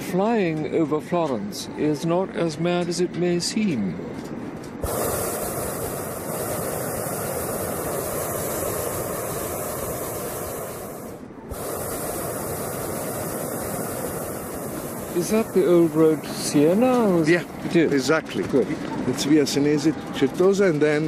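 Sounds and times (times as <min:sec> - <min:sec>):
propane burner hissing: 0:04.8 - 0:21.0.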